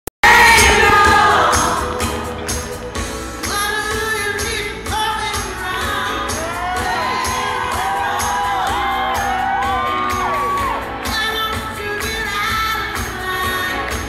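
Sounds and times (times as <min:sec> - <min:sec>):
live pop music with steady beat: 0:00.2 - 0:14.0
female vocals singing: 0:11.0 - 0:14.0.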